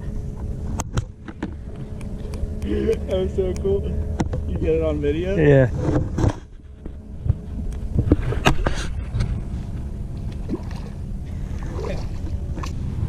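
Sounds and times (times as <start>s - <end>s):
steady low rumble: 0.0s - 13.0s
water lapping against boat hull: 5.8s - 13.0s.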